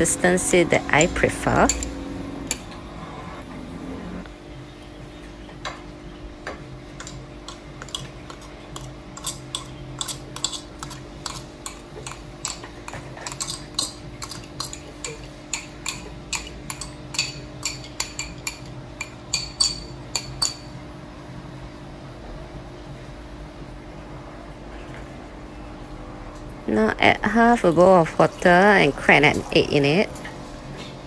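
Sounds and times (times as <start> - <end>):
low hum: 0.0 - 7.8
metal spoon scraping ceramic bowl: 7.5 - 12.6.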